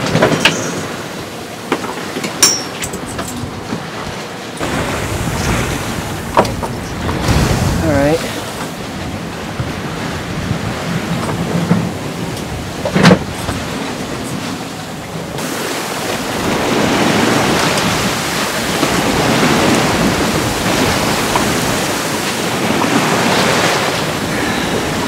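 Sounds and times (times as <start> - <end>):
sea rushing along hull: 0.0 - 25.0
wind rushing: 4.6 - 14.2.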